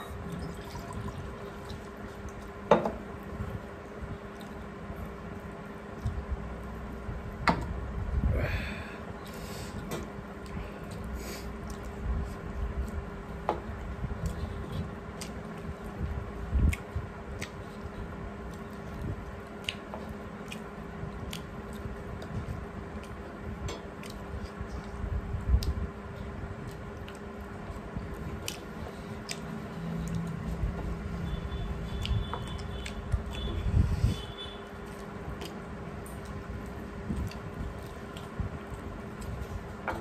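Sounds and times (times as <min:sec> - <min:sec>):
wet squishing of food by fingers: 0:00.0 - 0:07.1, 0:09.2 - 0:40.0
chewing: 0:16.6 - 0:23.3, 0:25.6 - 0:30.7, 0:31.9 - 0:33.6.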